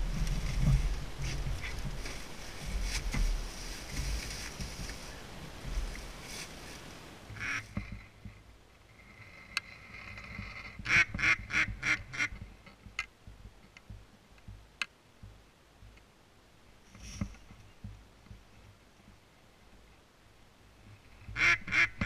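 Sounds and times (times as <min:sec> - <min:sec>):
duck quacking: 0:07.4 - 0:07.7, 0:10.8 - 0:12.4, 0:21.3 - 0:22.0.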